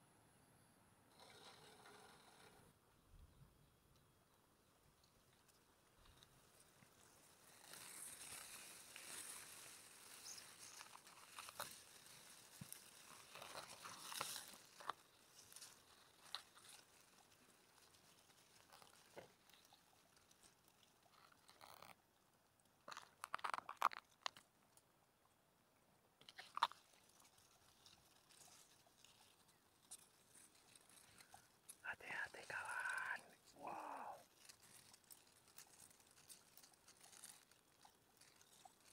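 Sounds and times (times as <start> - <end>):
grass rustling and crunching: 5.3 - 21.9, 26.2 - 38.9
sharp crackles: 5.4 - 22.0, 22.8 - 24.8, 26.2 - 38.9.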